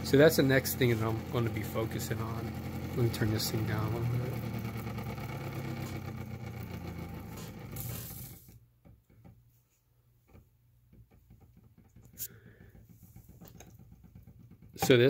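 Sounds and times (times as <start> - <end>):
motor humming: 0.0 - 8.6.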